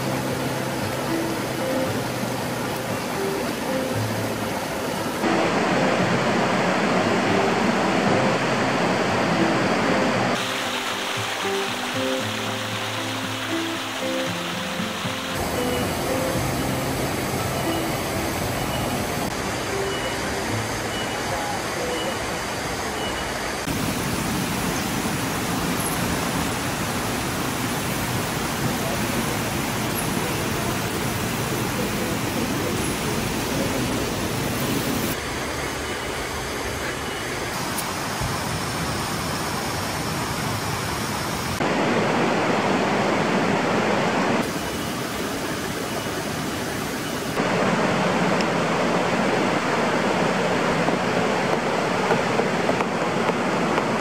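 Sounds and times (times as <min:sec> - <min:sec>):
waterfall and stream rushing: 0:00.0 - 0:54.0.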